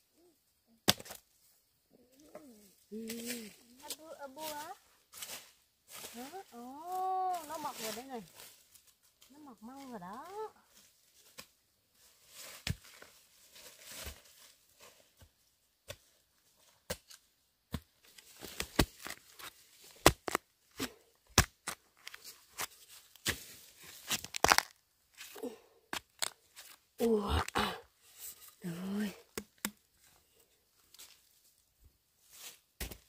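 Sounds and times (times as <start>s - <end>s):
sharp snaps and tearing: 24.0s - 24.8s.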